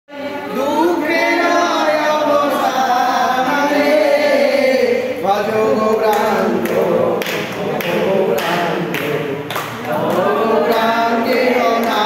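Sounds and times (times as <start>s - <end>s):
group singing devotional chant: 0.1s - 12.0s
man's voice leading singing: 4.7s - 9.5s.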